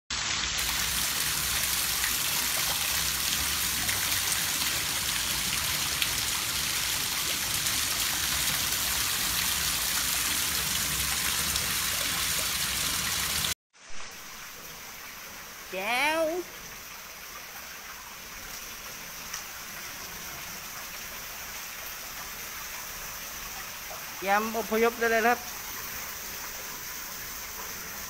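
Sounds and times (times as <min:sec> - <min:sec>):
water splashing onto tiled floor: 0:00.1 - 0:14.0.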